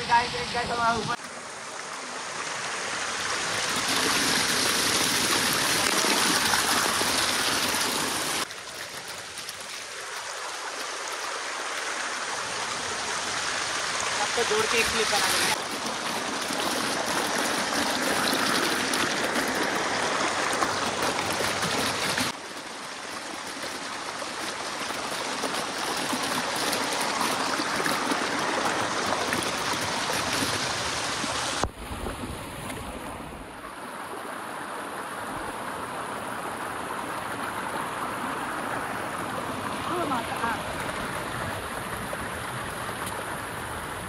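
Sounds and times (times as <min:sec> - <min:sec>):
waterfall rushing over rocks: 0:00.0 - 0:08.7, 0:09.9 - 0:31.7.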